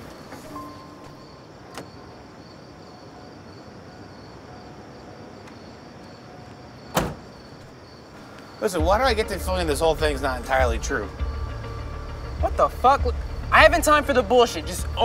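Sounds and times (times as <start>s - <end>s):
crickets chirping: 0.0s - 15.0s
van door slamming: 6.9s - 7.4s.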